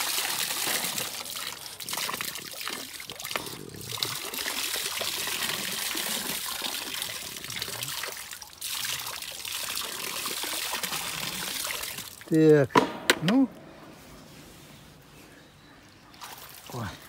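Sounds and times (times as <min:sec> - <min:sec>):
water trickling and splashing: 0:00.0 - 0:12.6, 0:16.1 - 0:17.0.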